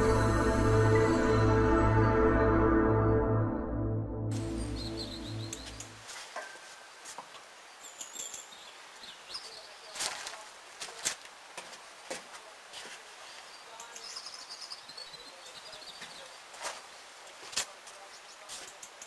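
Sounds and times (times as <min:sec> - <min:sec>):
small birds chirping: 0:04.4 - 0:11.0, 0:12.4 - 0:19.0.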